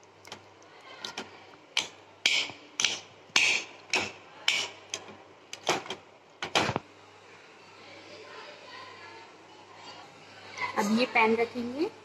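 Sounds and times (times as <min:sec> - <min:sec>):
metal spoon knocking a bowl: 0:01.8 - 0:04.8.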